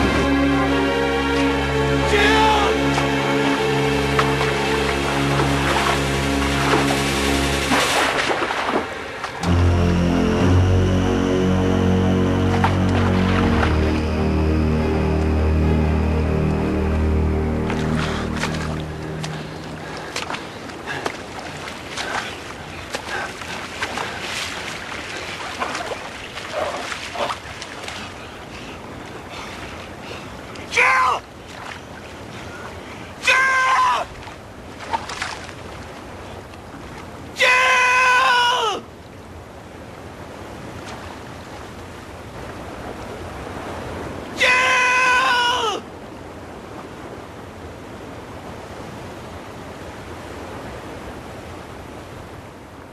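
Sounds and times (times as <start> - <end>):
sea water splashing: 0.0 - 15.4, 17.2 - 52.9
wind: 0.0 - 52.9
woman screaming: 37.4 - 38.8, 44.4 - 45.8.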